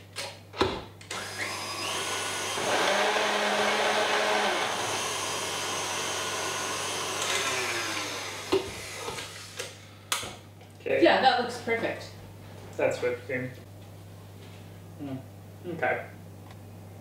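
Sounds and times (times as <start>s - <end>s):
stand mixer motor whining: 1.1s - 9.4s.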